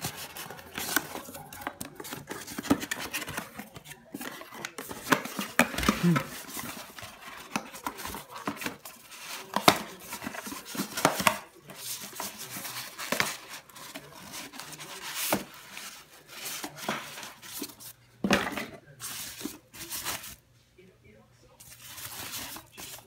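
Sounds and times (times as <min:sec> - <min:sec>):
cardboard and plastic crinkling: 0:00.0 - 0:20.4, 0:21.6 - 0:23.0.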